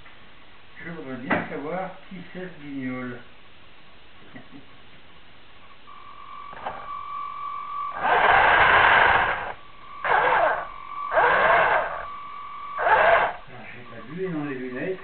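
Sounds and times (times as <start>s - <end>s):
steady high whine: 0.0s - 15.0s
small electric motor whirring: 7.9s - 12.1s, 12.8s - 13.5s.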